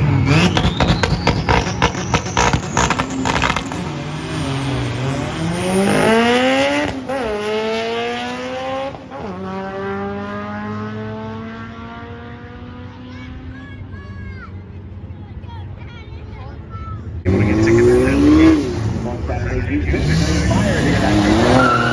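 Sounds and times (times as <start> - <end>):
car accelerating hard: 0.0 - 13.2, 17.2 - 21.9
engine popping and crackling: 0.3 - 3.9.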